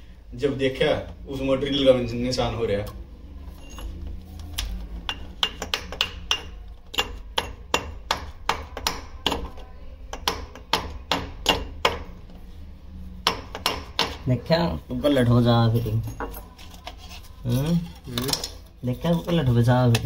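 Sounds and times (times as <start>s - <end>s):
hammer striking: 5.1s - 12.2s, 13.2s - 14.2s.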